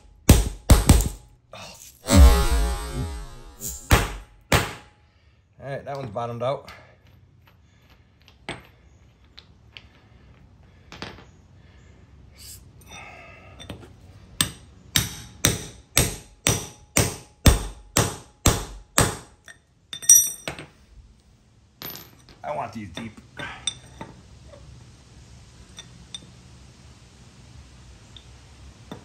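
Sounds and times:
metallic clink: 19.4s - 20.7s, 23.6s - 24.0s.

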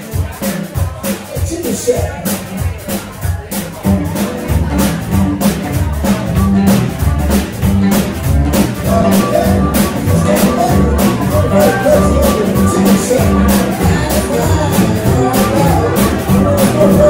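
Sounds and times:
bass line: 0.0s - 17.0s
drum kit beat: 0.0s - 17.0s
electric guitars: 1.8s - 17.0s
harmonica wailing: 8.9s - 17.0s.

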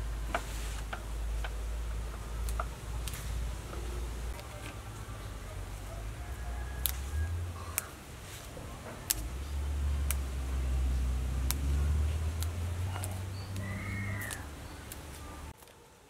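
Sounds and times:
stems snapping: 0.2s - 15.8s
animal call: 12.8s - 15.5s.

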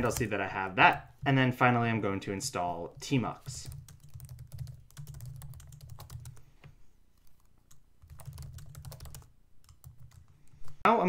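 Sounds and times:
computer keyboard typing: 0.0s - 1.1s, 2.9s - 6.5s, 7.2s - 10.6s.

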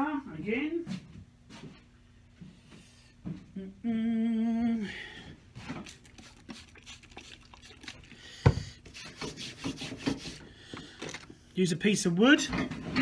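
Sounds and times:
man humming: 3.5s - 5.0s
spray bottle squirting water: 5.7s - 8.2s.

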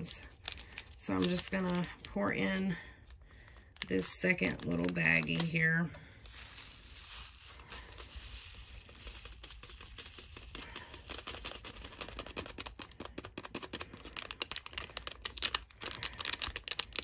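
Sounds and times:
tiny beads pattering into a jar: 3.8s - 13.7s.

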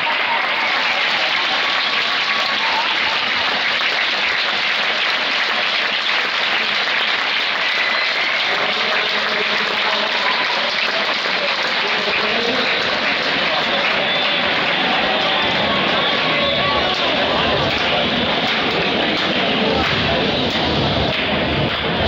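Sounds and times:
spectators applauding and cheering: 0.0s - 22.0s
voices calling out: 8.5s - 20.6s.

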